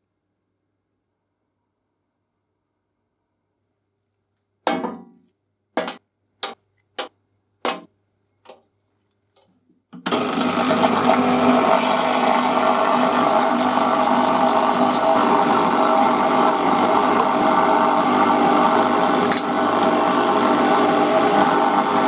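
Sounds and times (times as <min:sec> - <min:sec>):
washer pump running: 0:10.1 - 0:22.0
brush scrubbing metal: 0:13.1 - 0:17.5, 0:21.3 - 0:22.0.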